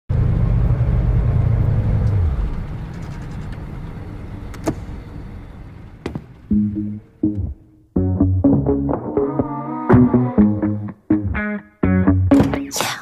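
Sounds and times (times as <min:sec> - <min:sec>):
car engine rumble: 0:00.1 - 0:08.0.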